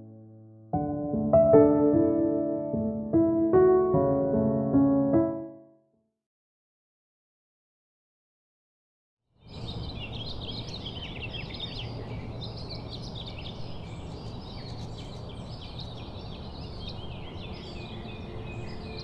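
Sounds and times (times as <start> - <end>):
small birds chirping and singing: 9.4 - 19.0.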